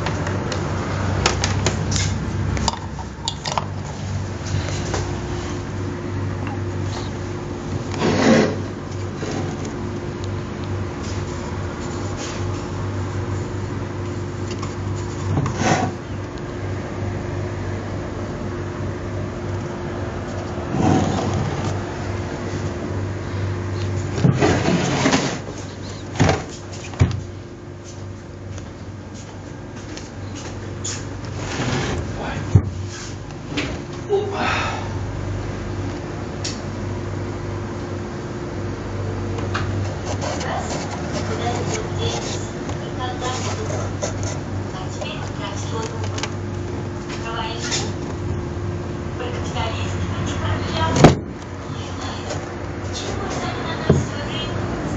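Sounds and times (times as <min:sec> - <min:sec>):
steady low hum: 0:00.0 - 0:54.9
wooden case rubbing and scraping: 0:07.9 - 0:09.7, 0:15.0 - 0:16.0, 0:20.4 - 0:21.8, 0:24.1 - 0:27.0, 0:30.9 - 0:32.2, 0:39.8 - 0:44.5.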